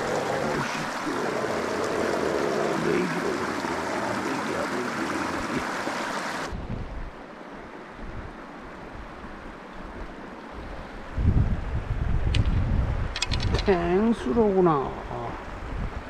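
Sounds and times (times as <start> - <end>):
stream water rushing over rocks: 0.0 - 6.6.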